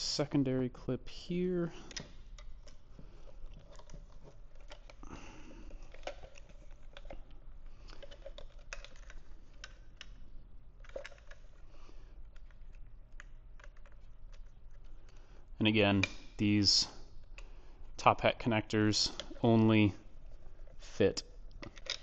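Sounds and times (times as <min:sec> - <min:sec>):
hard plastic clicks and rustles: 0:01.8 - 0:10.2, 0:10.8 - 0:15.3, 0:21.4 - 0:22.0.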